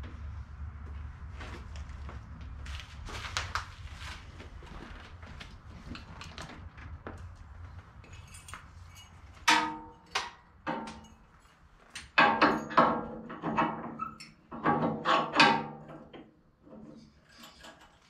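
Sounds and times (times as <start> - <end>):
metallic clangs of steel on steel: 8.1 - 13.0.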